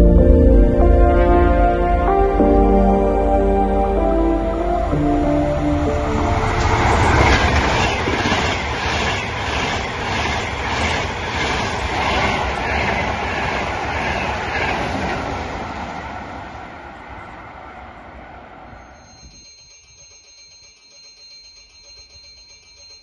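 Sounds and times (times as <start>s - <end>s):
high-speed train rushing past: 3.6s - 19.2s.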